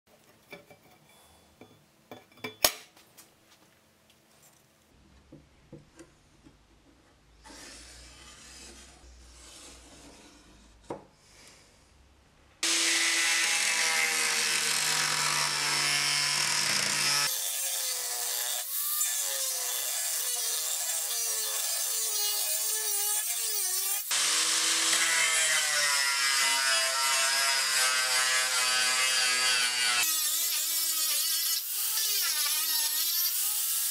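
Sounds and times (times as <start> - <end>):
angle grinder cutting steel: 12.6 - 33.9.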